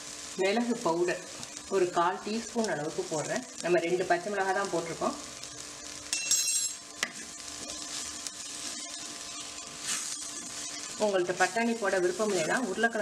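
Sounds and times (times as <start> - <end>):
vegetables sizzling in pot: 0.0 - 13.0
metallic clink: 6.1 - 6.8.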